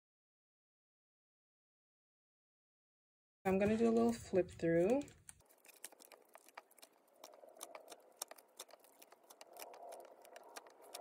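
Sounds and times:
plastic sleeve pages turning: 3.5s - 11.0s.

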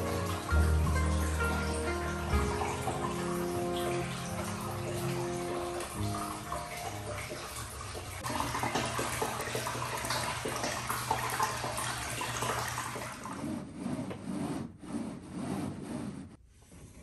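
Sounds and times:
water pouring into a bathtub: 0.0s - 13.4s.

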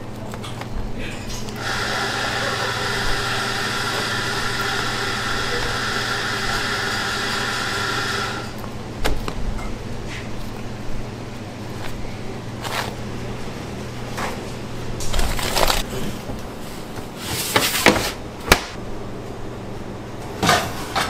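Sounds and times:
steady machine hum: 0.0s - 21.0s.

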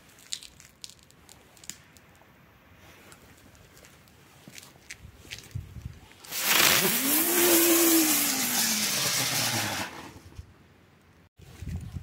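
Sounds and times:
firework hissing and whirring: 6.3s - 10.3s.

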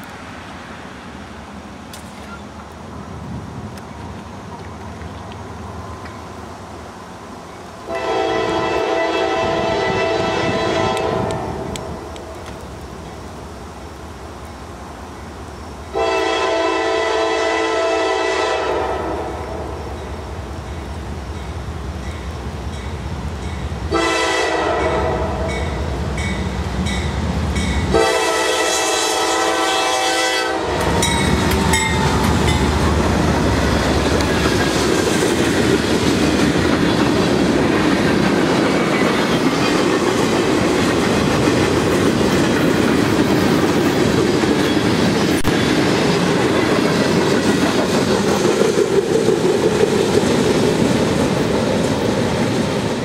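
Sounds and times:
freight cars wheel-on-rail noise: 0.0s - 53.0s
wheels clicking over rail joints: 1.8s - 6.4s, 30.7s - 53.0s
train horn: 7.9s - 12.2s, 15.9s - 19.9s, 23.9s - 25.8s, 27.9s - 32.6s.

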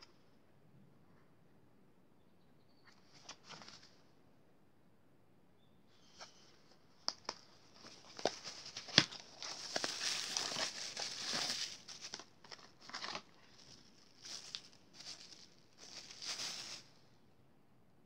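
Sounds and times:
plastic bag crinkling: 7.7s - 16.9s.

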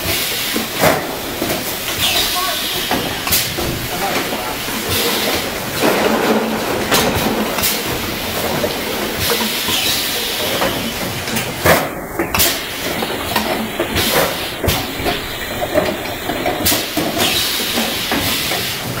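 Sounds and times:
filling machine hissing: 0.0s - 5.8s, 7.5s - 11.5s, 12.3s - 19.0s.

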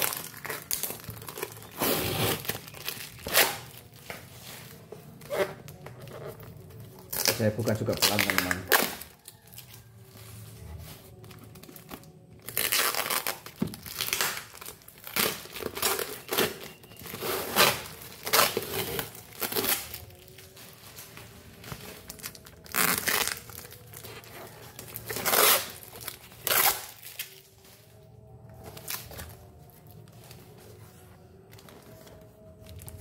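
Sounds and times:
plastic packaging crinkling and tearing: 0.0s - 10.0s, 10.8s - 33.0s.

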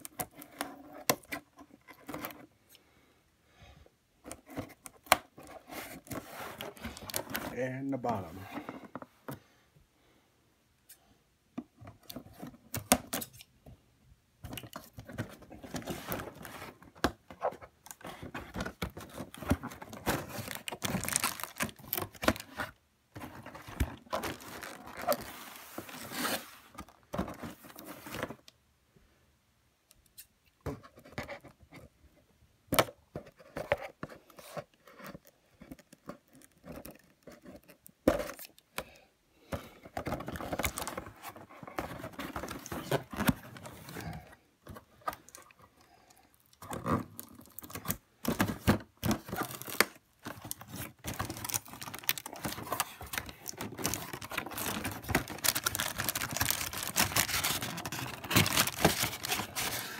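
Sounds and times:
cardboard tearing and rustling: 17.4s - 28.4s, 40.0s - 44.2s, 46.7s - 59.9s.

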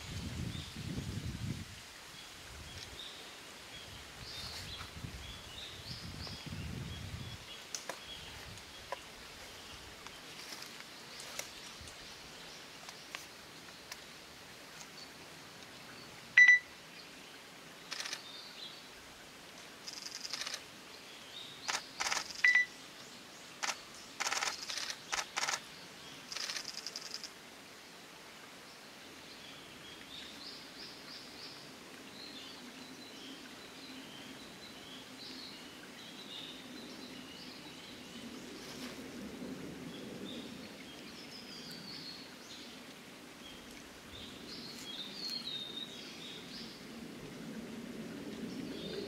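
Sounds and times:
short high beeps: 16.4s - 16.7s, 22.5s - 22.7s.

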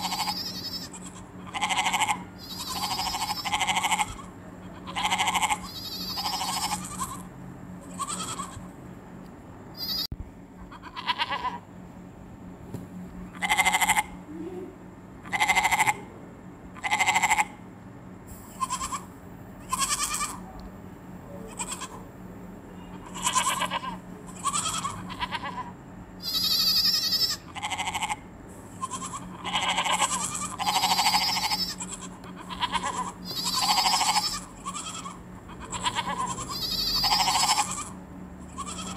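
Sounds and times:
goats bleating: 0.0s - 8.7s, 10.7s - 11.7s, 13.4s - 14.2s, 15.3s - 16.1s, 16.8s - 17.5s, 18.5s - 20.4s, 21.4s - 22.0s, 23.0s - 38.9s.

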